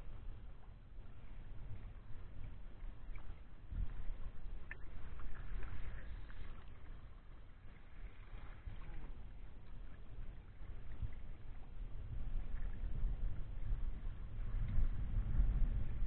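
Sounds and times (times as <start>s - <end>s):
wind rumble on microphone: 0.0s - 16.0s.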